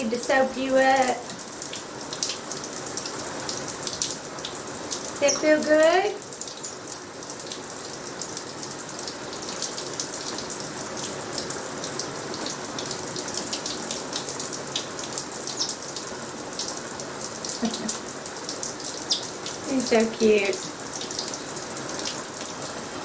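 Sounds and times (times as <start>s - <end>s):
shower water spraying: 17.3s - 23.0s.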